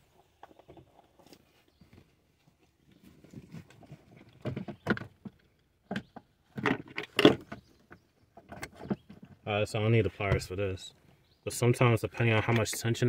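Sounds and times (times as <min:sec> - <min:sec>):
seat belt clattering and clicking: 0:03.9 - 0:09.4.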